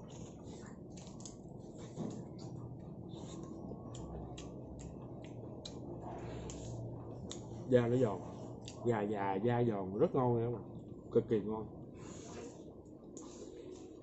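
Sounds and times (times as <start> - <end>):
person chewing food: 0.0 - 7.5
low steady hum: 0.0 - 14.0.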